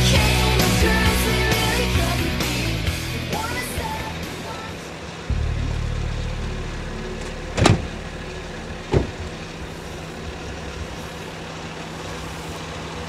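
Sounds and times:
car engine idling: 0:00.0 - 0:13.0
car doors slamming: 0:07.2 - 0:08.2, 0:08.8 - 0:09.6.

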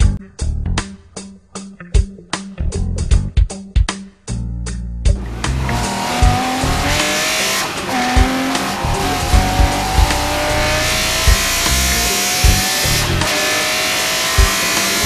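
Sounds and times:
music with bass beat: 0:00.0 - 0:13.5, 0:14.2 - 0:15.0
engine whine: 0:05.2 - 0:15.0.

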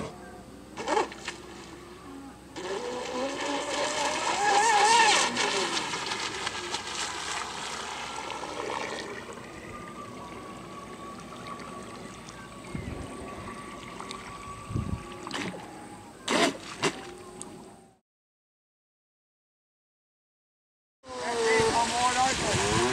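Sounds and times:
speedboat motor whine: 0:00.0 - 0:18.0, 0:21.1 - 0:22.9
water hissing off hull: 0:02.6 - 0:17.2, 0:21.1 - 0:22.9.

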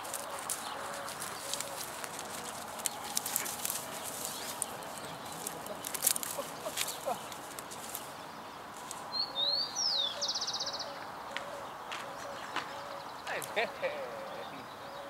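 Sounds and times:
light clicks and rustles: 0:00.0 - 0:08.1.

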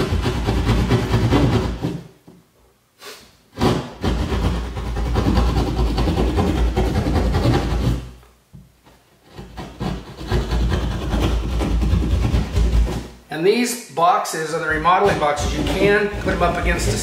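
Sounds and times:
hand saw rasping through drywall: 0:00.0 - 0:02.1, 0:03.5 - 0:08.2, 0:09.2 - 0:13.2, 0:14.7 - 0:17.0.

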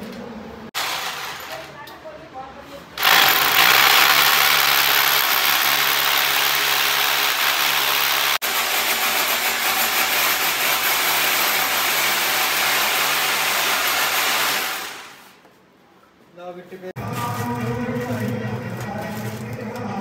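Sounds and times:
power tool motor grinding: 0:03.0 - 0:09.9.

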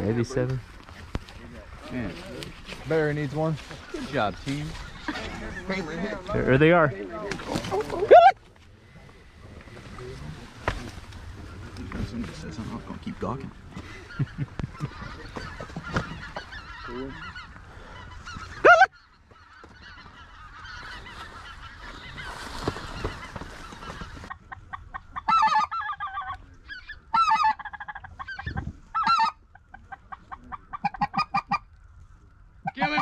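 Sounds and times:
rustling: 0:00.2 - 0:13.3, 0:14.8 - 0:24.3
goose calling: 0:00.9 - 0:10.4, 0:11.4 - 0:31.8, 0:32.6 - 0:33.0.

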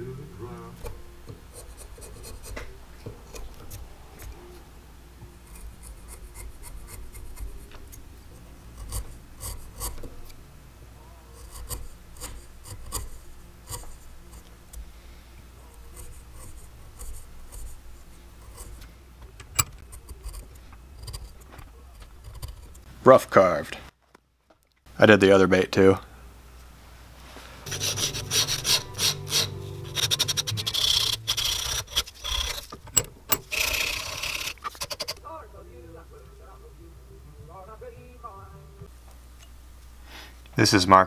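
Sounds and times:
chisel scraping wood: 0:00.8 - 0:04.4, 0:05.4 - 0:08.0, 0:08.7 - 0:10.3, 0:11.4 - 0:14.8, 0:15.7 - 0:18.9, 0:19.6 - 0:22.9, 0:27.7 - 0:35.2.

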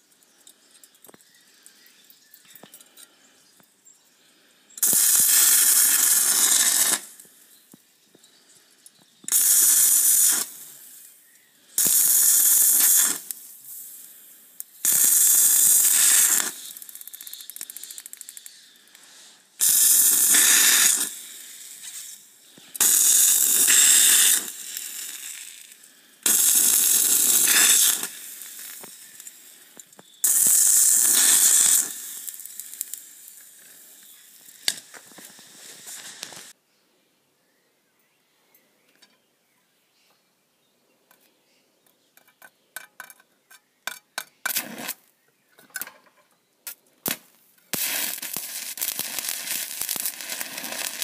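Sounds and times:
welding arc crackling: 0:04.8 - 0:07.2, 0:09.3 - 0:11.1, 0:11.8 - 0:36.5, 0:47.1 - 0:51.0.

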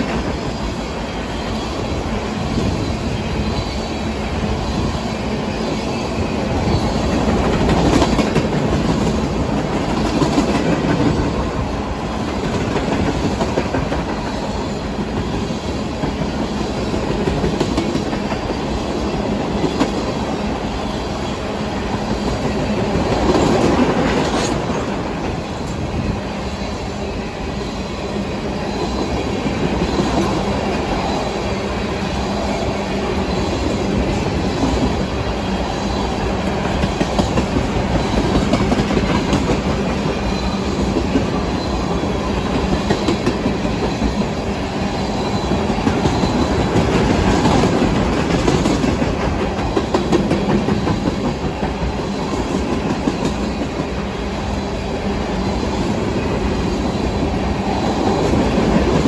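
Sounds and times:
train wheels clacking over joints: 0:06.6 - 0:11.5, 0:36.1 - 0:53.9.

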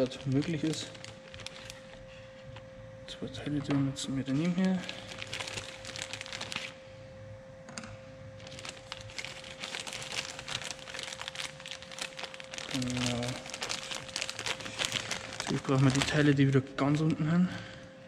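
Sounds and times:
plastic bag crinkling: 0:00.0 - 0:02.1, 0:04.3 - 0:06.8, 0:08.4 - 0:17.0.

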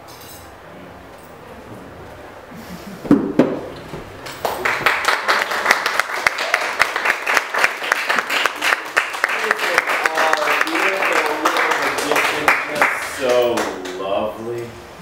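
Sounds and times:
audience applauding: 0:04.2 - 0:14.1.

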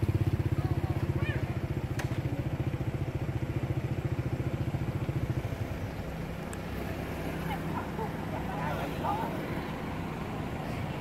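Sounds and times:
motorbike engine chugging: 0:00.0 - 0:06.4
road traffic rumble: 0:00.0 - 0:11.0.

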